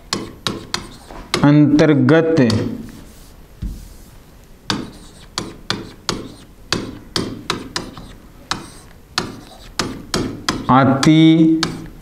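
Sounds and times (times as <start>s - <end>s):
writing taps on a board: 0.1s - 1.5s, 2.4s - 2.9s, 4.7s - 12.0s.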